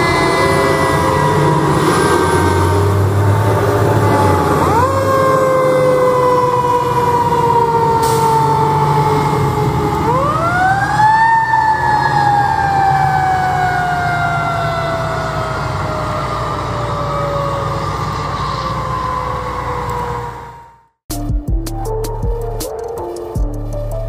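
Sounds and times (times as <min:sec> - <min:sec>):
heavy engine rumble: 0:00.0 - 0:10.7
fire truck siren winding: 0:00.0 - 0:21.0.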